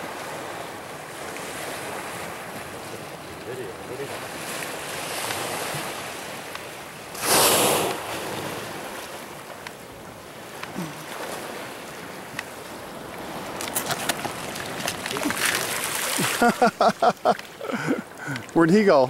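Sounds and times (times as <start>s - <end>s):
sea water washing: 0.0s - 19.0s
whale blowing exhalation: 7.1s - 8.6s.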